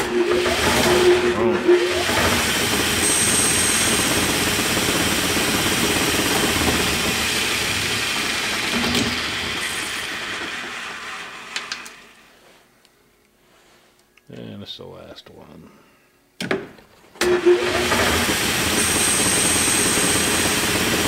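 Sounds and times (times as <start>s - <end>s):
lathe spindle running: 0.0s - 11.8s, 17.2s - 21.0s.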